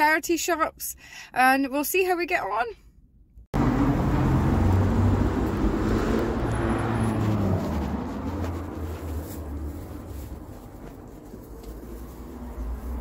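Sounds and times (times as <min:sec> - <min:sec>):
street traffic: 0:03.0 - 0:13.0
vehicle engine rumbling: 0:03.3 - 0:13.0.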